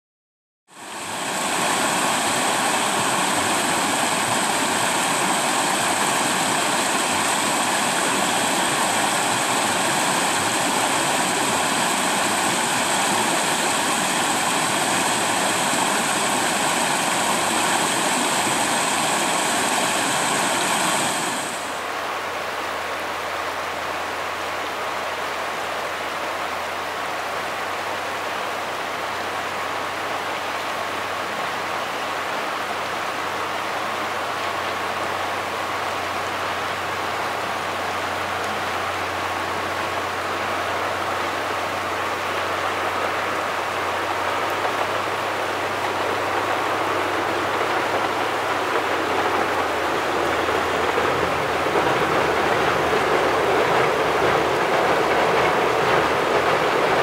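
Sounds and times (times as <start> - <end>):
river rushing over rocky rapids: 0.7 - 57.0.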